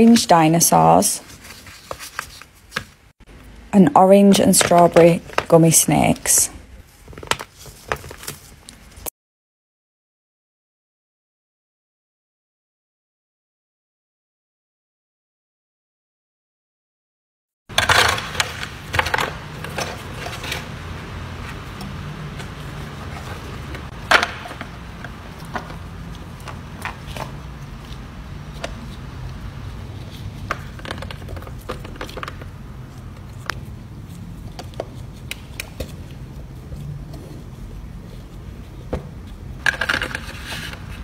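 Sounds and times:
low steady hum: 0:17.7 - 0:41.0.

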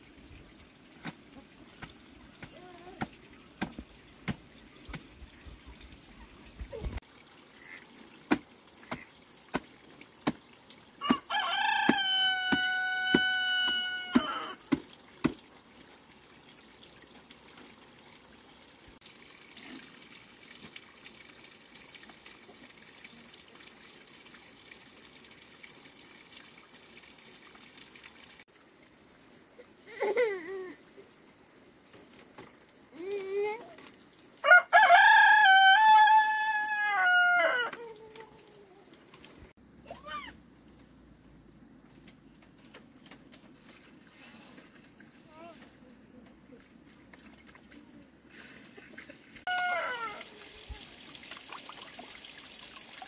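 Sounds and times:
rooster crowing: 0:11.0 - 0:14.6, 0:34.4 - 0:37.8, 0:49.5 - 0:50.4
short rooster calls: 0:49.5 - 0:50.4.

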